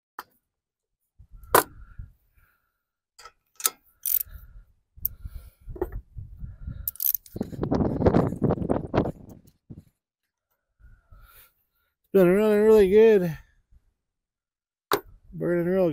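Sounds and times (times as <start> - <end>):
metallic ratchet clicks and knocks: 3.2 - 4.3, 6.9 - 7.4.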